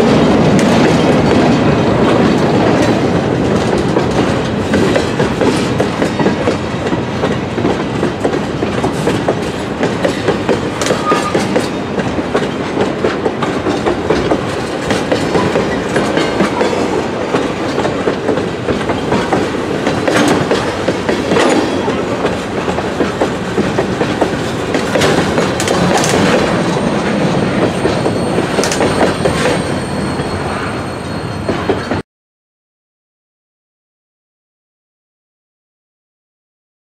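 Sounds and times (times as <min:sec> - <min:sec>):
train wheels clicking over rail joints: 0:00.0 - 0:30.4
high wheel squeal: 0:10.8 - 0:11.6, 0:26.6 - 0:32.0.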